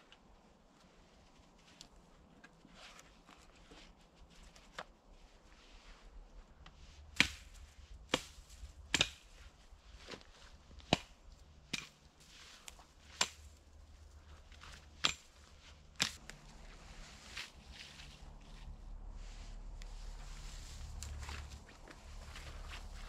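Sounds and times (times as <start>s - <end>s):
axe chopping wood: 7.2s - 9.4s, 10.8s - 12.0s, 13.0s - 13.6s, 14.6s - 16.2s.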